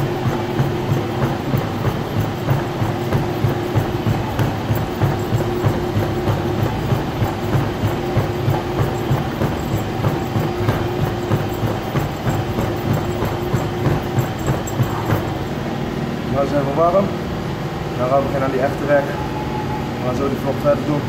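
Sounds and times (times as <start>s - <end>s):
feet thudding on treadmill belt: 0.0s - 16.8s
treadmill motor whine: 0.0s - 21.0s.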